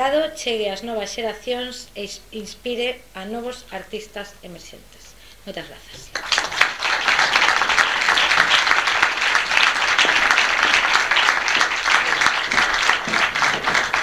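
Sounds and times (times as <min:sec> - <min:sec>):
audience applauding: 0:06.1 - 0:14.0.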